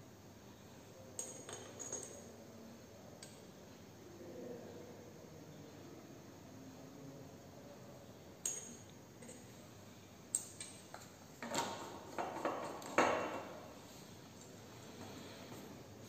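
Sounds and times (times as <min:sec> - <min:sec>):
glassware clinking: 0:08.4 - 0:09.4.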